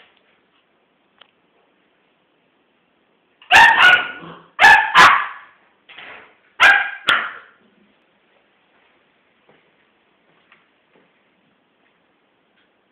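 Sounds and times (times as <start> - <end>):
small dog barking: 3.5 - 5.6, 6.6 - 7.5.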